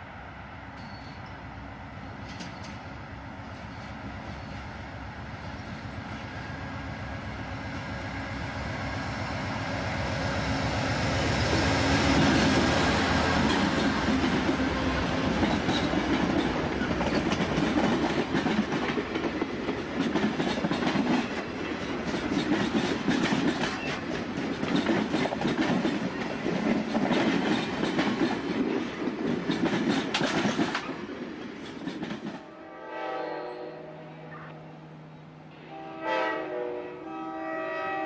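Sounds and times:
train cars rumbling: 0:00.0 - 0:32.5
wheels clicking over rail joints: 0:15.3 - 0:32.4
distant train horn: 0:32.4 - 0:34.8, 0:35.5 - 0:38.0.

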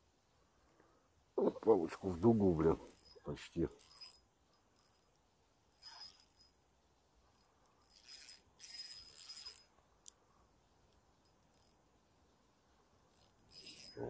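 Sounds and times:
fishing reel whirring: 0:02.6 - 0:10.2, 0:10.8 - 0:14.0.

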